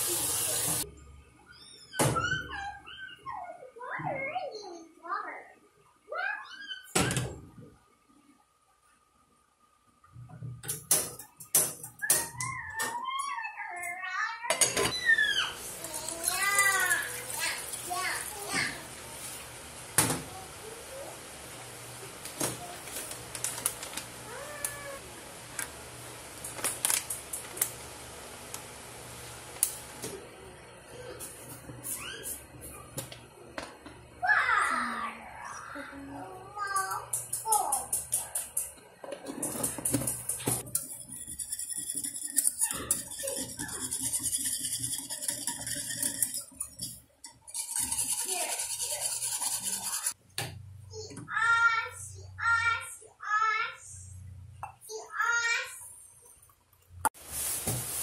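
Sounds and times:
metal whisk clinking in saucepan: 39.4s - 50.2s
whisk knocking on pan: 39.4s - 50.2s.

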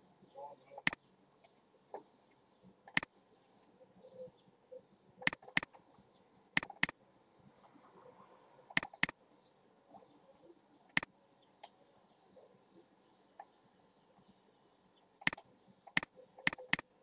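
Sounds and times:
mouse button clicks: 2.9s - 3.1s, 5.2s - 5.7s, 6.6s - 6.9s, 8.7s - 9.1s, 15.2s - 16.8s.

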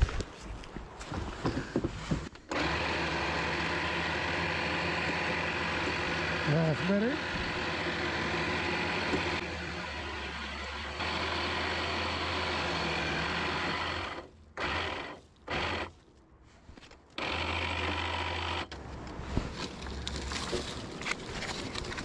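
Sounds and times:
electric winch humming: 2.5s - 15.9s
rustling: 15.2s - 17.2s, 18.8s - 22.0s
cable handling noises: 18.7s - 22.0s.

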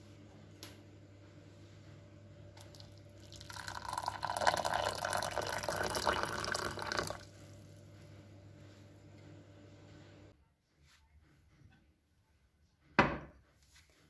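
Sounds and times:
water pouring into a mug: 2.6s - 7.3s.

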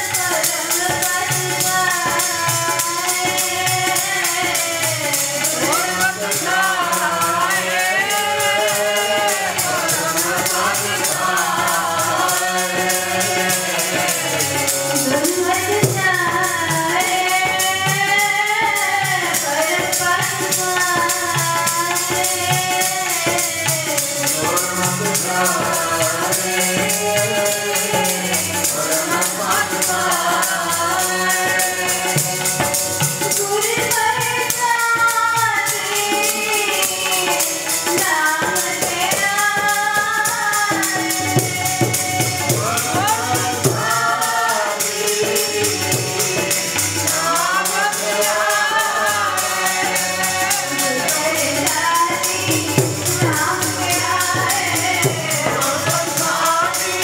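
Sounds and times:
harmonium: 0.0s - 57.0s
tabla: 0.0s - 57.0s
voices singing together: 0.0s - 57.0s
woman singing hymn: 15.0s - 23.8s, 33.3s - 41.8s, 47.1s - 57.0s.

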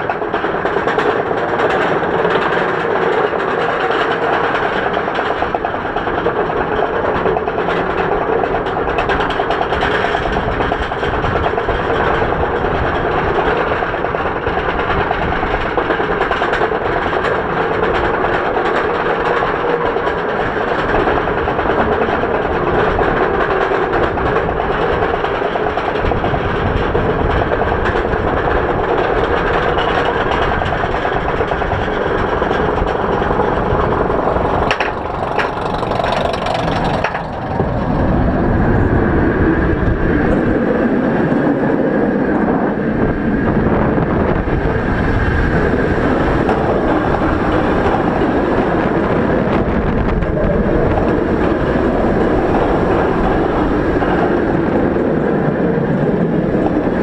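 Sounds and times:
wheels on steel track: 0.0s - 57.0s
wind rush: 0.0s - 57.0s
chain lift rattle: 29.4s - 38.0s.

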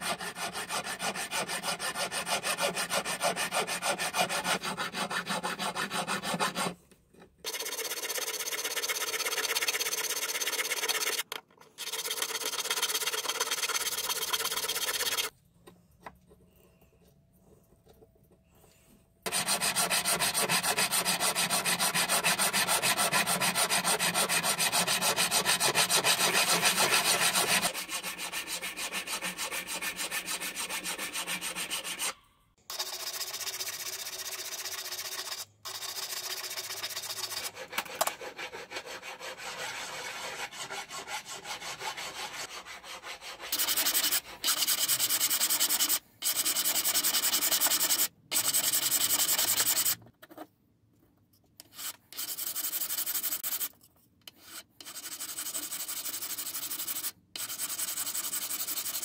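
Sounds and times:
hand file scraping metal tube: 0.0s - 6.8s, 7.5s - 15.3s, 19.3s - 32.2s, 36.2s - 50.0s.

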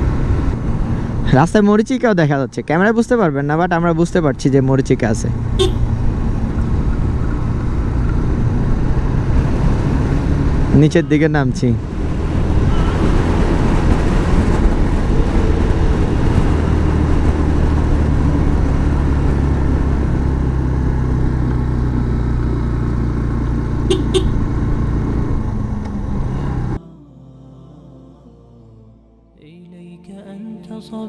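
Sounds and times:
motorcycle engine running: 5.3s - 26.7s
wind noise on microphone: 11.8s - 18.8s.

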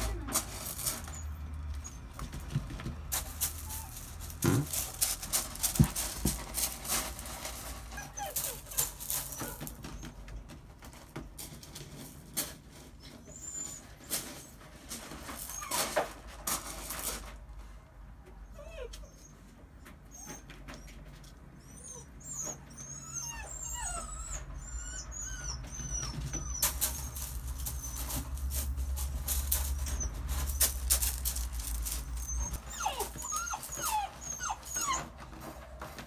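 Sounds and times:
puppies whimpering: 7.9s - 10.2s, 18.4s - 19.4s, 21.6s - 35.3s.

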